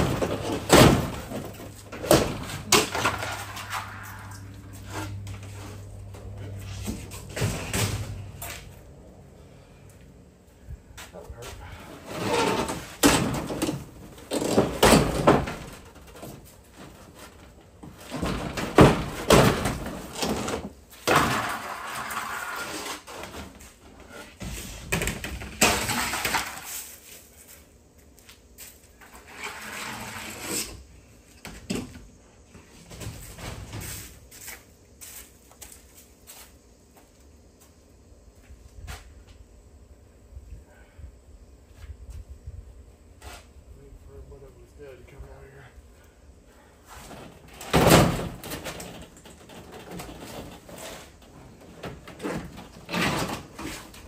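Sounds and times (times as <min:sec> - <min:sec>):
boards being pried off: 0:00.0 - 0:04.0, 0:12.1 - 0:16.4, 0:18.0 - 0:23.5, 0:47.1 - 0:54.0.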